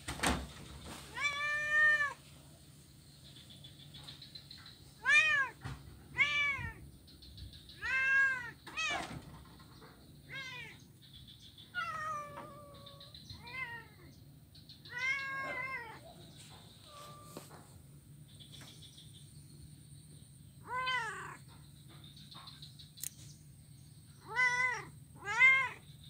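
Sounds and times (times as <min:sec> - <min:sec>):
cat meowing: 0:01.1 - 0:02.2, 0:05.0 - 0:06.8, 0:07.8 - 0:09.1, 0:10.3 - 0:10.8, 0:11.7 - 0:14.1, 0:14.9 - 0:16.2, 0:20.6 - 0:21.4, 0:24.2 - 0:25.8.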